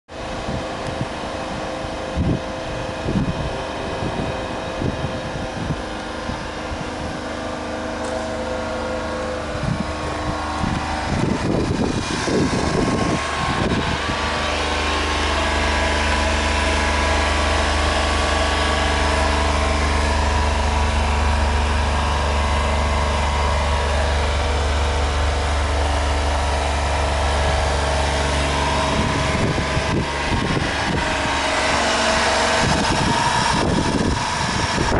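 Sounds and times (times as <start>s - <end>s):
truck engine idling: 0.1s - 34.9s.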